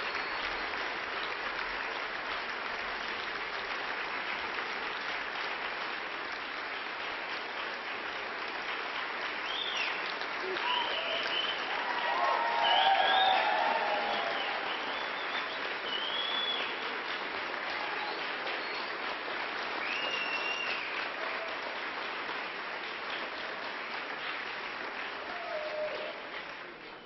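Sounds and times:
audience applause: 0.0 - 27.0
high calls from audience: 10.4 - 16.8, 25.2 - 26.4.

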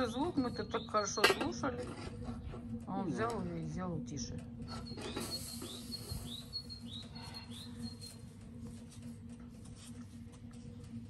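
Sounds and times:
small birds chirping: 0.0 - 1.3, 4.8 - 8.3
pot on stove humming: 0.0 - 11.0.

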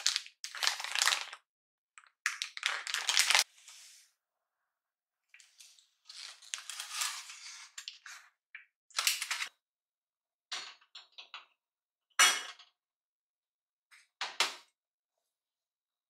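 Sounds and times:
plastic packaging crinkling: 0.0 - 1.4, 2.3 - 3.4.

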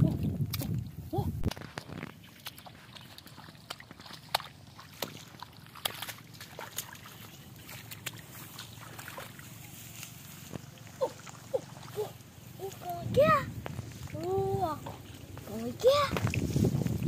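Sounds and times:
sharp splashes: 1.5 - 12.8
hands sloshing in muddy water: 1.5 - 12.9.

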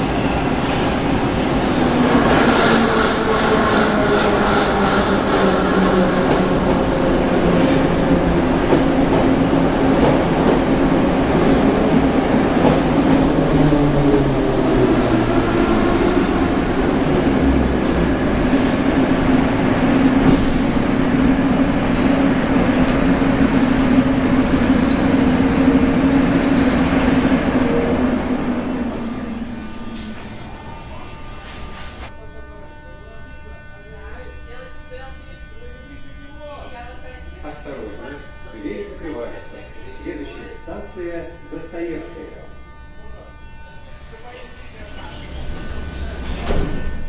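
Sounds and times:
rumble of train wheels: 0.0 - 31.8
metro train braking: 0.0 - 32.3, 33.1 - 47.0
standing train humming: 0.0 - 47.0.

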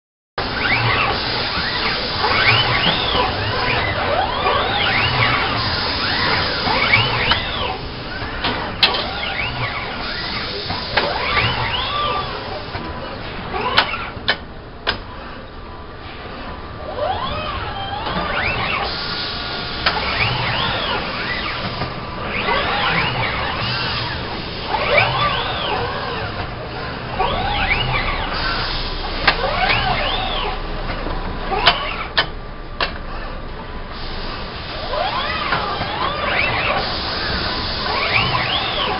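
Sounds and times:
servo motors whining: 0.4 - 14.3, 16.1 - 32.3, 33.9 - 38.9
steady background noise: 0.4 - 38.9
steady mechanical hum: 0.4 - 38.9.

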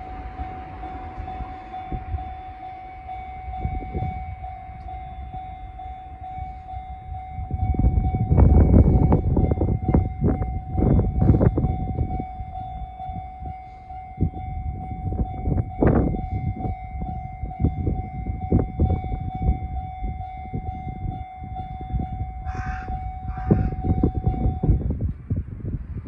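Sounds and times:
level crossing alarm ringing: 0.0 - 25.0
wind buffeting microphone: 0.0 - 26.0
crow cawing: 22.5 - 23.7.

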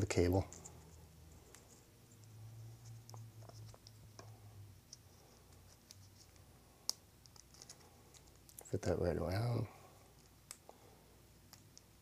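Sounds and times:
faint low hum: 0.0 - 12.0
plastic connector clicks and scratches: 2.9 - 4.3, 5.6 - 8.7.

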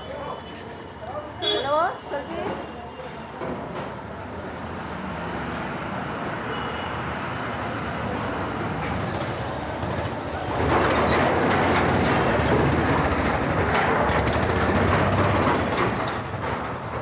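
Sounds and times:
moving vehicle noise: 0.0 - 17.0.

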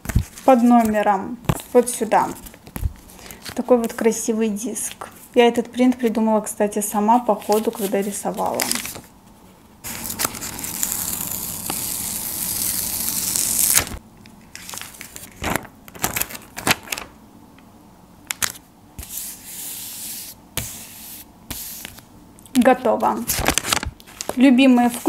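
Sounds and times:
paper crinkling and tapping: 0.0 - 4.1, 23.0 - 25.0.

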